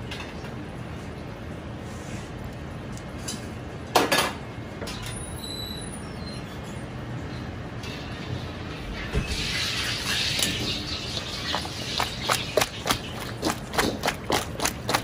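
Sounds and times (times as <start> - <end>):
kitchen background hum: 0.0 - 15.0.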